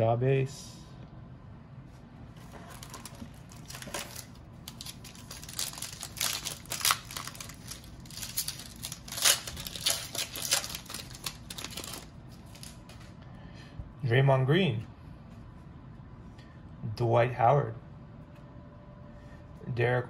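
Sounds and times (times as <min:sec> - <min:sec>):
foil wrapper tearing and crinkling: 0:02.7 - 0:12.8.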